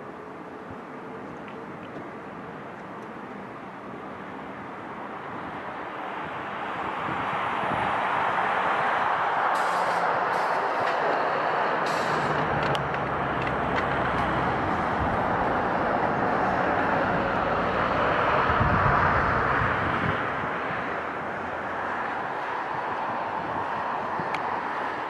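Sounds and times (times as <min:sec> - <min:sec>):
jet engines roaring: 0:05.4 - 0:25.0.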